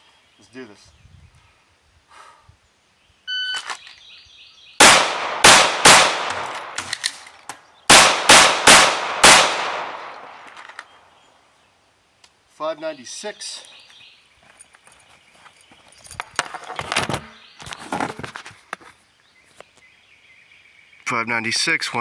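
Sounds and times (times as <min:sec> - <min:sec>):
pistol shots ringing: 0:04.8 - 0:07.1, 0:07.9 - 0:10.6.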